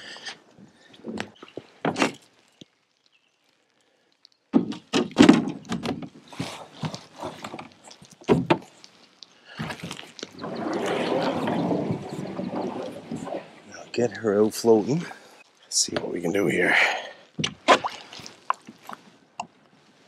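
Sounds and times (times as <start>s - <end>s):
hull scraping over shore: 9.8s - 15.3s.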